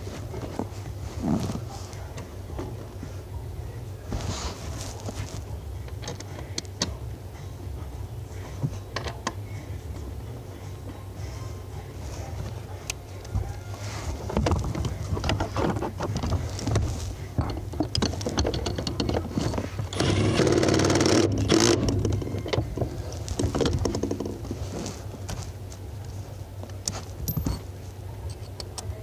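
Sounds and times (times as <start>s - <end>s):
tools clicking and clattering: 14.3s - 24.5s, 26.7s - 28.9s.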